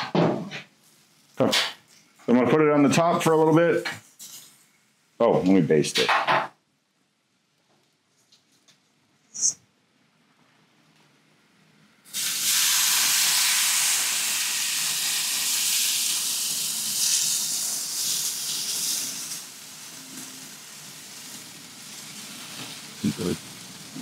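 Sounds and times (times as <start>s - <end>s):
liquid sizzling on hot grill: 4.0s - 4.6s, 12.0s - 24.0s.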